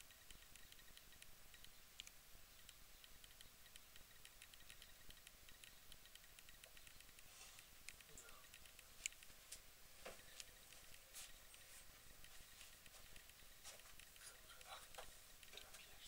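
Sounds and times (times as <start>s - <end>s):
soft irregular ticks: 0.0s - 16.0s.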